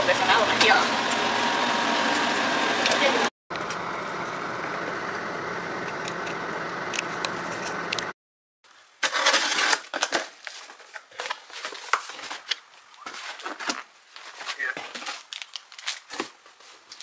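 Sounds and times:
cardboard flaps scraping and crackling: 0:09.0 - 0:17.0.

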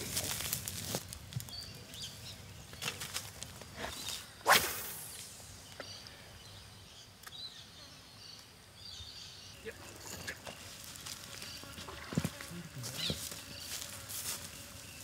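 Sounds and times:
fishing rod swish: 0:04.4 - 0:05.3.

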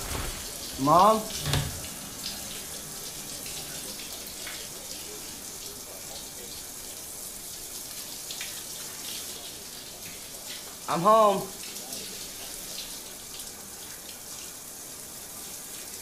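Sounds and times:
water running from a tap: 0:00.0 - 0:16.0.

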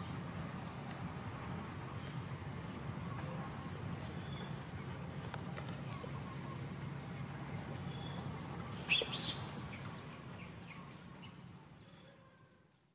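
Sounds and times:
birds chirping: 0:00.0 - 0:12.6.

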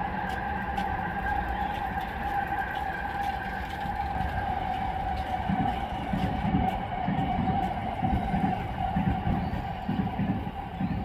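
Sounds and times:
train whine and rumble: 0:00.0 - 0:11.0.

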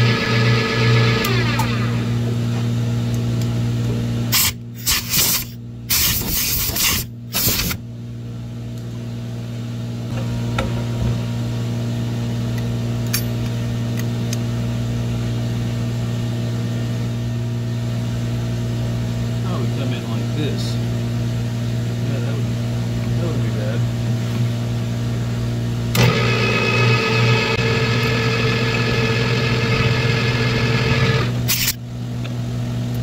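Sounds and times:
milling machine humming: 0:00.0 - 0:02.5, 0:25.9 - 0:31.8
compressed air hissing blasts: 0:04.3 - 0:07.8.

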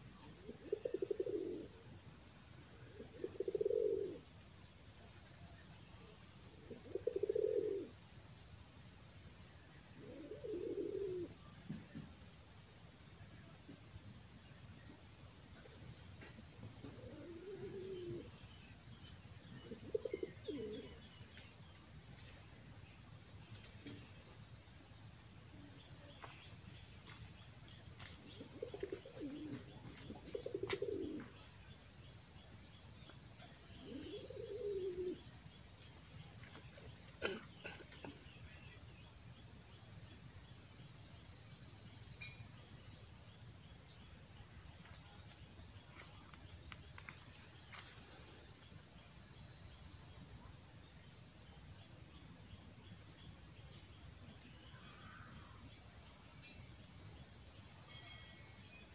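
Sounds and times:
bird cooing: 0:00.2 - 0:01.9, 0:02.8 - 0:04.3, 0:06.6 - 0:08.0, 0:10.0 - 0:11.4, 0:16.8 - 0:18.4, 0:19.6 - 0:21.0, 0:28.3 - 0:31.4, 0:33.8 - 0:35.3
high-pitched insect drone: 0:52.9 - 0:58.9.

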